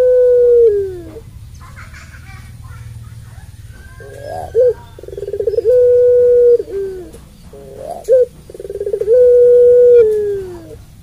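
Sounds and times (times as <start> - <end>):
dove cooing: 0.0 - 1.2, 3.6 - 11.0.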